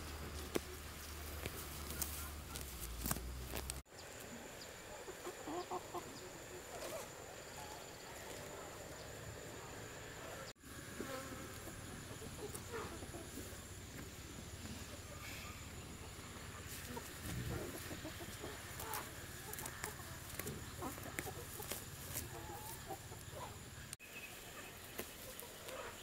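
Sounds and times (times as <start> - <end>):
plants rustling and snapping: 0.0 - 3.8, 18.7 - 22.4
chickens calling faintly: 0.0 - 26.0
high insect whine: 3.2 - 26.0.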